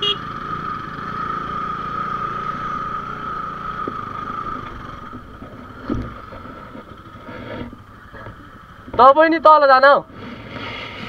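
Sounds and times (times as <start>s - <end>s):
motorcycle engine running: 0.0s - 9.4s.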